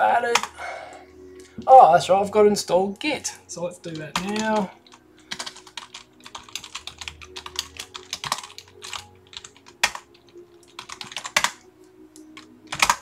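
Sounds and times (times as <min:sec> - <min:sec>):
computer keyboard typing: 0:00.3 - 0:00.6, 0:03.9 - 0:11.6, 0:12.2 - 0:13.0.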